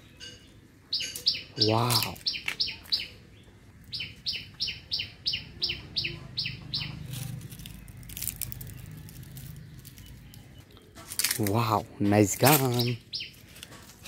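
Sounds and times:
bird chirping falling notes: 0:00.0 - 0:13.7.

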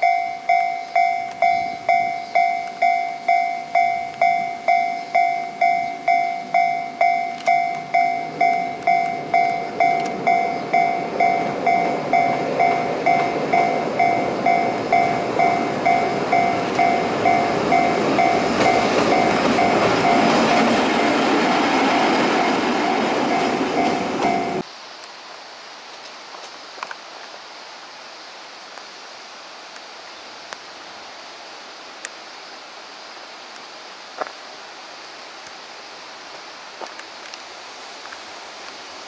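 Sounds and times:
railroad crossing bell: 0:00.0 - 0:24.7
train wheels rumbling on rails: 0:00.0 - 0:24.7.

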